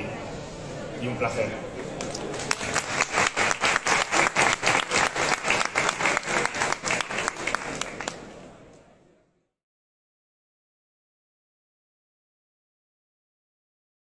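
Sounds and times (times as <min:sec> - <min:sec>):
audience applauding: 0:02.0 - 0:08.3.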